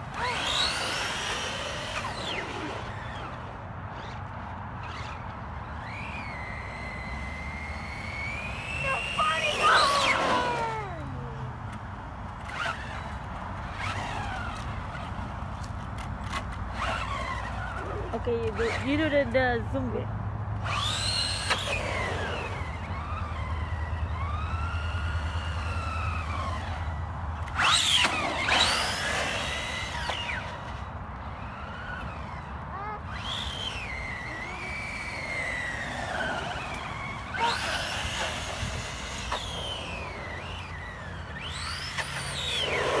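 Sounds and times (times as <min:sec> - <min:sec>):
toy truck motor whine: 0:00.0 - 0:15.3, 0:16.0 - 0:18.8, 0:20.6 - 0:43.0
tyre noise on asphalt: 0:20.6 - 0:43.0.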